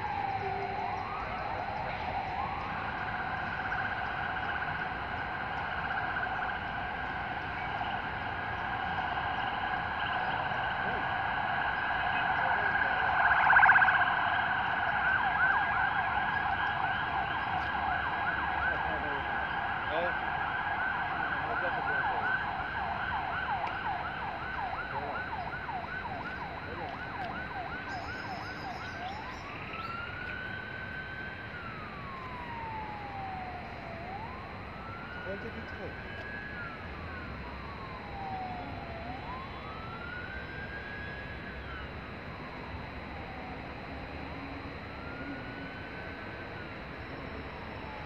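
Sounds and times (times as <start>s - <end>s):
electronic siren: 0.0s - 48.0s.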